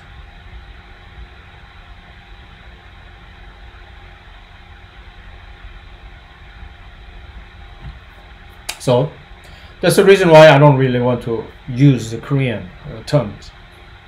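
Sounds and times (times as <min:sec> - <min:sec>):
faint steady tones: 0:00.0 - 0:14.0
steady low hum: 0:00.0 - 0:14.0.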